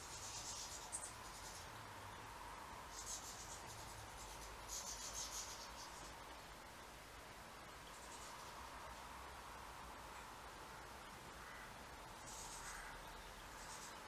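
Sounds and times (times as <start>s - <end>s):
goldfinches twittering: 0.0s - 2.2s, 2.9s - 6.2s, 11.4s - 14.0s.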